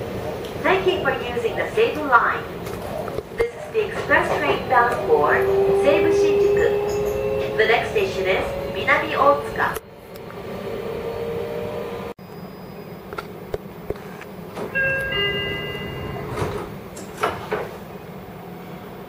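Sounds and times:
train cabin hum: 0.0s - 12.2s, 13.0s - 19.0s
door-closing chime: 14.7s - 16.7s
sliding doors thudding shut: 15.9s - 17.8s.

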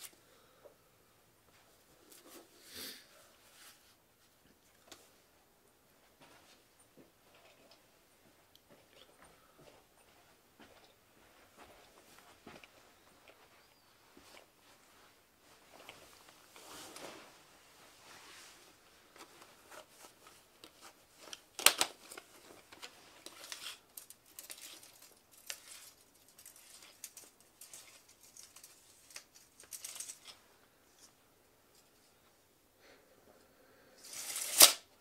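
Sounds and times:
tape measure clicks and rustles: 23.3s - 30.4s, 34.0s - 34.9s
sharp tape measure clack: 34.1s - 34.8s.

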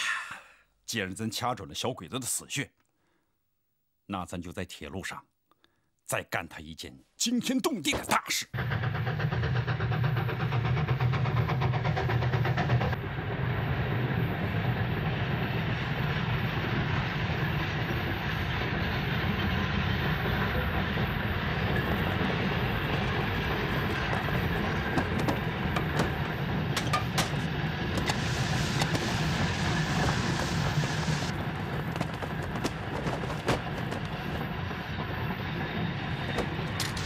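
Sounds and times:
steam locomotive chuffing: 8.5s - 37.0s
train rumble: 8.6s - 37.0s
train wheels clattering on rails: 8.6s - 37.0s.

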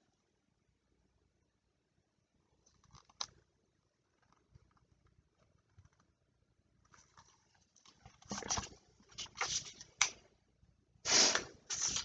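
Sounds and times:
book pages rustling: 6.9s - 10.0s.

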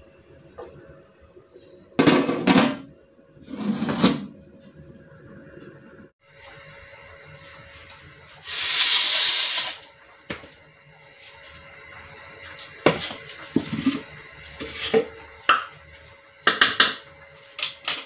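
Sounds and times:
loud hissing burst: 8.4s - 9.9s.

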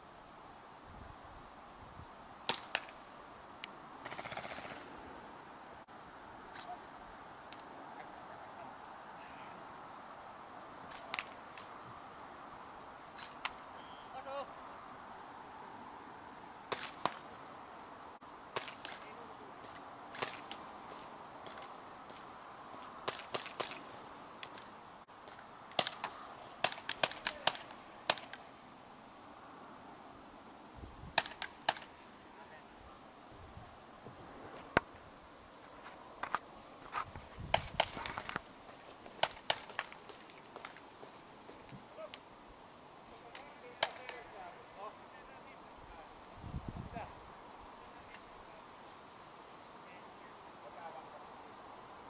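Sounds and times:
faint hiss: 0.0s - 52.0s
airsoft gun shots: 2.5s - 2.9s, 4.0s - 4.9s
airsoft guns firing: 4.0s - 4.9s, 25.7s - 28.4s, 39.2s - 40.8s.

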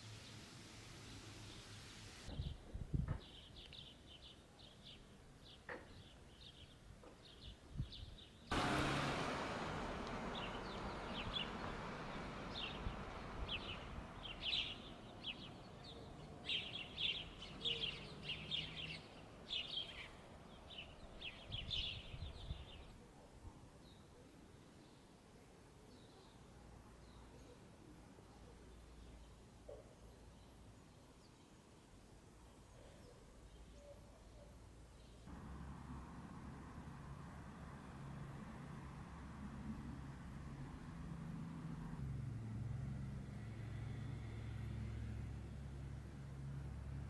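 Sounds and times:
small birds chirping: 1.0s - 8.5s, 10.0s - 23.0s.

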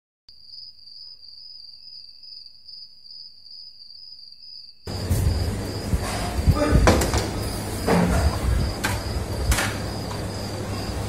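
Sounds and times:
cricket trilling: 0.3s - 11.0s
rumbling room noise: 4.9s - 11.0s
knocks: 6.0s - 9.8s.

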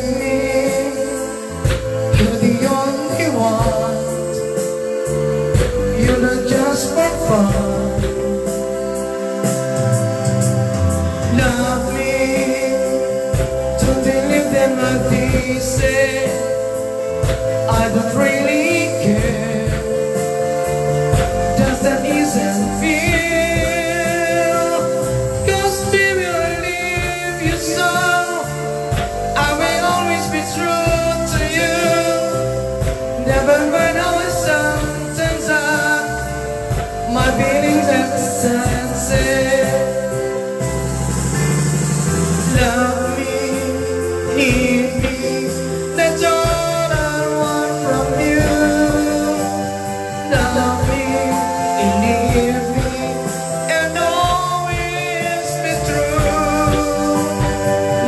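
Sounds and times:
man singing into microphone: 0.0s - 58.0s
sustained keyboard chords: 0.0s - 58.0s.

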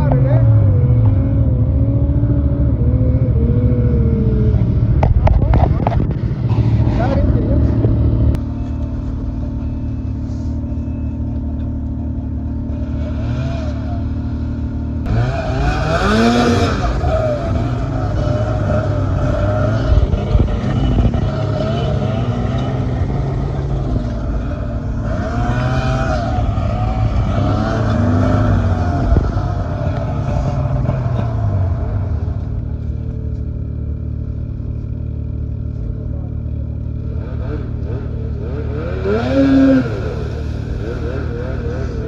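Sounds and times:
snowmobile engine revving: 9.7s - 32.9s, 36.6s - 42.0s.

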